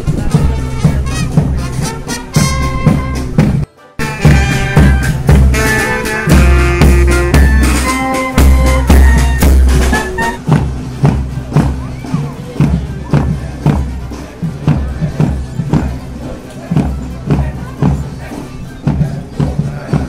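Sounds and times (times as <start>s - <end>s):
bass drum beat: 0.0s - 20.0s
brass horns playing melody: 0.3s - 10.6s.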